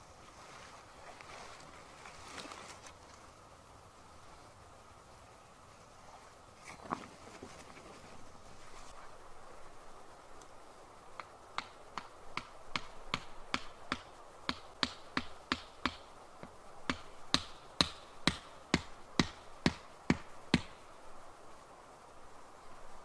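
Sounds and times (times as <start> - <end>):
tent peg being hammered: 11.2 - 16.1, 16.8 - 20.8.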